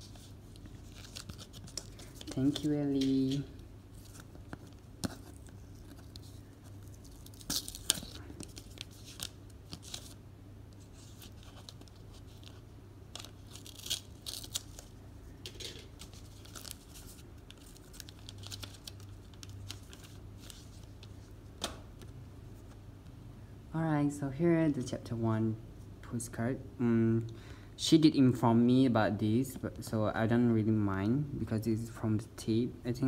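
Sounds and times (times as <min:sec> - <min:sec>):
low steady hum: 0:00.0 - 0:33.0
packaging rustling and tearing: 0:00.1 - 0:10.2, 0:10.9 - 0:21.2.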